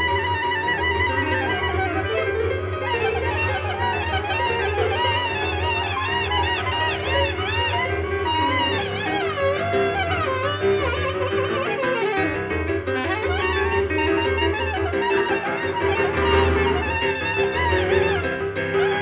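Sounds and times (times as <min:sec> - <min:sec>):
reed wind instrument playing: 0:00.0 - 0:19.0.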